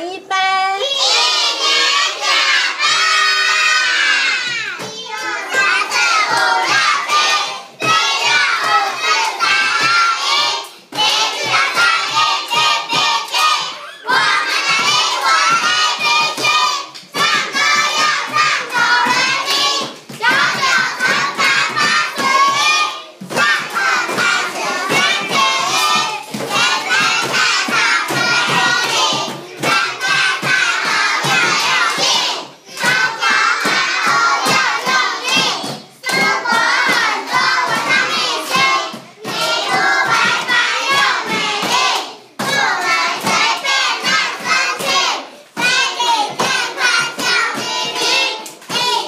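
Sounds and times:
children singing together: 0.8 - 49.0
hands tapping a beat: 10.9 - 45.0.

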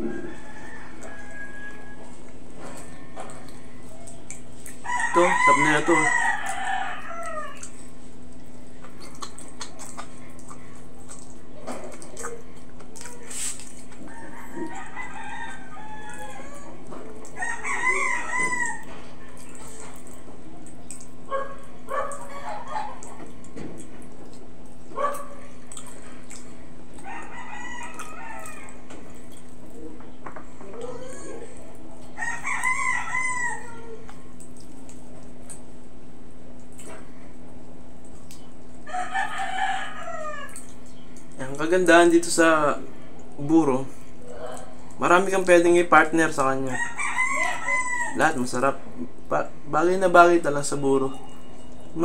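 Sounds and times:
rooster crowing: 0.0 - 2.2, 4.8 - 7.7, 14.0 - 19.0, 27.0 - 28.8, 32.2 - 34.0, 38.8 - 40.6, 46.6 - 48.4
steady low hum: 0.0 - 46.2.

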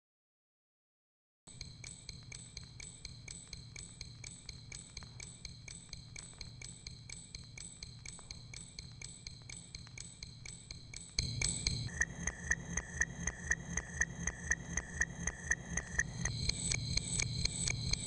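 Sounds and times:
metallic ticking: 1.5 - 18.0
low hum: 11.2 - 18.0.

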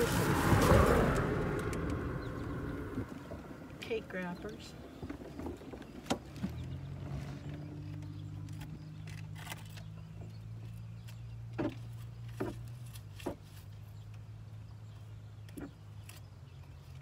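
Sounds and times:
low hum: 0.0 - 4.8.

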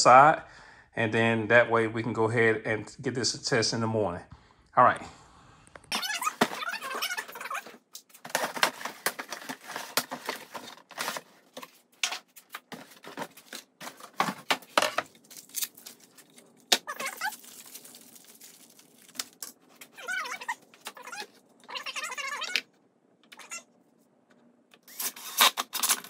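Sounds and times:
cardboard box rustling: 6.3 - 16.4.

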